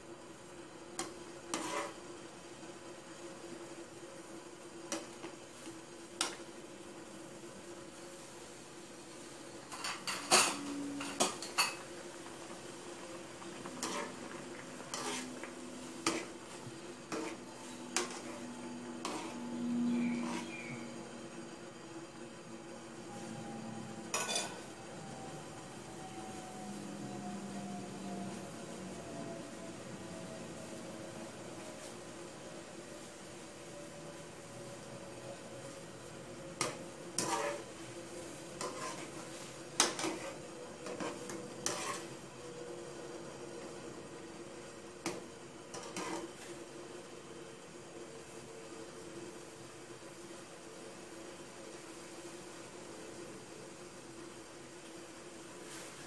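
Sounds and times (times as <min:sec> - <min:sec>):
faint steady hum: 0:00.0 - 0:56.0
skimmer scraping metal pot: 0:13.5 - 0:16.4, 0:19.0 - 0:20.8
low hum: 0:17.7 - 0:21.4.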